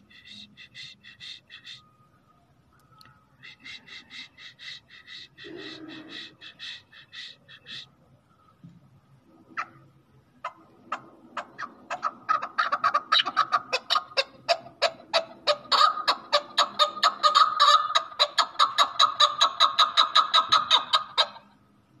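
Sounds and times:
partridge clucking call: 0.0s - 1.8s, 3.4s - 7.9s, 10.4s - 21.5s.

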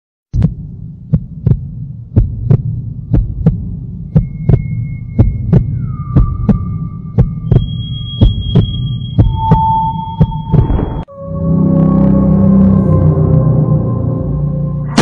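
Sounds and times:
heartbeat-like thumps: 0.3s - 11.1s
low drone: 0.7s - 15.0s.

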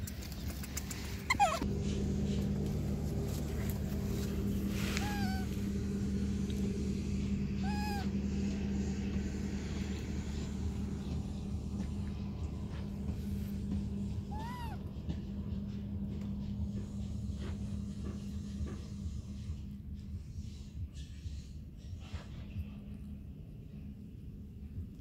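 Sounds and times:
steady low hum: 0.0s - 25.0s
baby monkey coo calls: 1.2s - 1.7s, 4.6s - 5.6s, 7.5s - 8.3s, 14.2s - 14.9s
baby monkey squeal: 1.2s - 1.7s, 4.9s - 5.5s, 7.6s - 8.1s, 14.3s - 14.8s.

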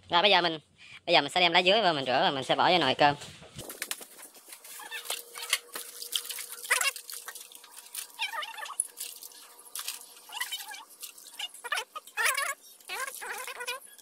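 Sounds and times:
leaves rubbed in water: 3.7s - 14.0s
animal calls: 4.7s - 5.6s, 6.5s - 7.1s, 8.0s - 9.5s, 10.2s - 14.0s
water dripping: 5.0s - 14.0s.

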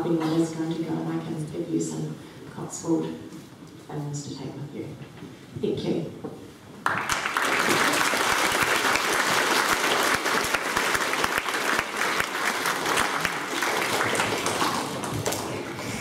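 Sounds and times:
children applauding: 6.8s - 16.0s.

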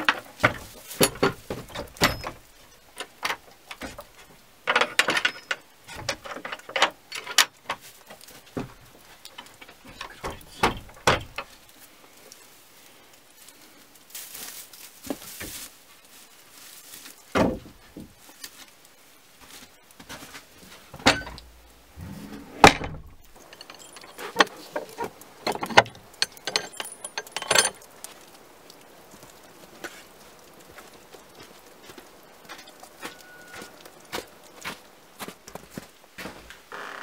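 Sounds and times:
wooden knocks and clicks: 0.0s - 11.6s, 17.3s - 18.2s, 20.9s - 21.6s, 22.3s - 29.4s
wood creaking: 0.0s - 11.9s, 17.2s - 18.8s, 19.5s - 37.0s
footsteps on boards and straw: 0.0s - 37.0s.

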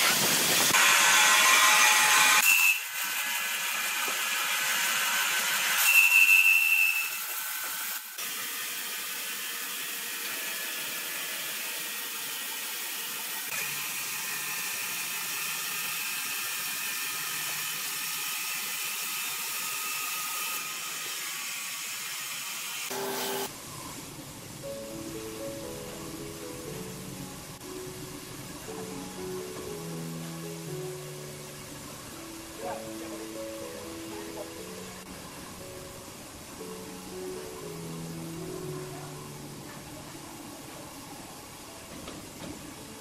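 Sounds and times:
band saw cutting wood: 0.0s - 23.5s
high saw whine: 0.0s - 23.5s.

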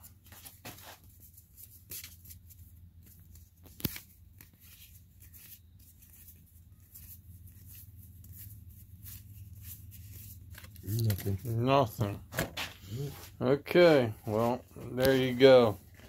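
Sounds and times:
low steady hum: 1.1s - 16.0s
cards sliding and flicking: 3.0s - 6.4s, 7.0s - 11.4s.

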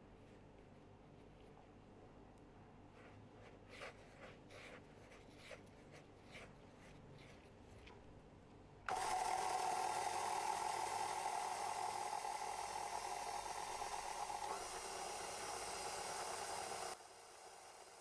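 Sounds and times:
stand mixer motor whirring: 8.9s - 18.0s.

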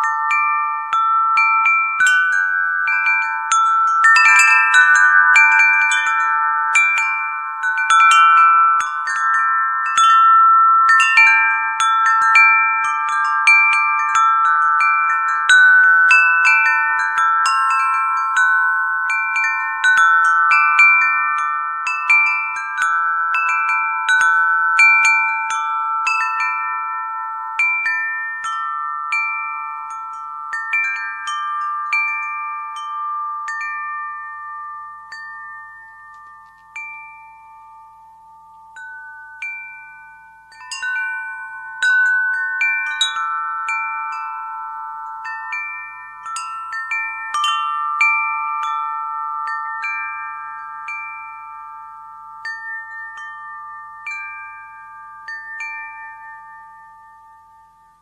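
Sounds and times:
wind chimes ringing: 0.0s - 58.0s.

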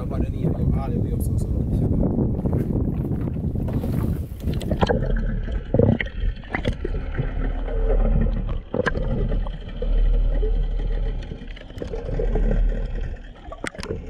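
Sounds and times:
underwater bubbling and gurgling: 0.0s - 14.0s
wind and sea noise: 0.0s - 14.0s
low steady underwater hum: 2.0s - 14.0s
sharp underwater clicks: 4.4s - 14.0s.

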